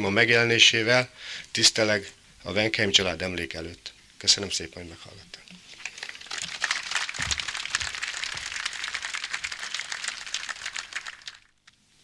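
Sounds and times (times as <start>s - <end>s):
audience applauding: 5.8s - 11.6s.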